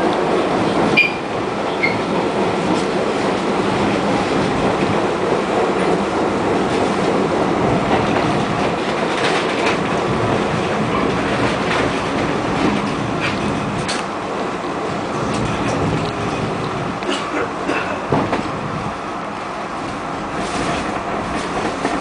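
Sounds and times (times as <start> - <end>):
train wheels rumbling on track: 0.0 - 22.0.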